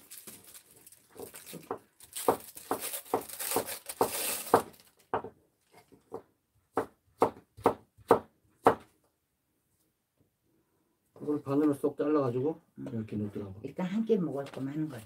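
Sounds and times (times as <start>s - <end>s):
knife chopping on wooden board: 6.1s - 8.9s.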